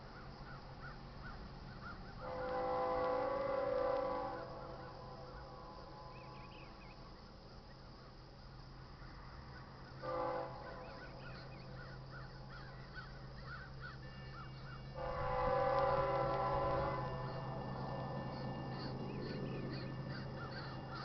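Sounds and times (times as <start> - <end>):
low steady hum: 0.1 - 21.0
distant locomotive horn blast: 2.2 - 6.9, 10.0 - 11.8, 13.9 - 21.0
birds chirping: 10.6 - 21.0.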